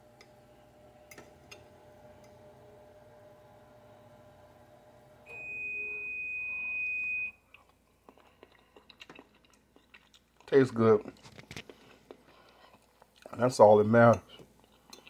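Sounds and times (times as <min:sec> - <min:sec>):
faint hum: 0:00.0 - 0:08.9.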